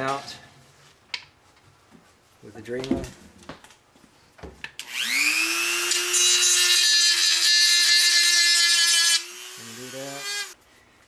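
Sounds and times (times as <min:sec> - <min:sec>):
rotary tool whining and grinding: 0:04.8 - 0:10.6.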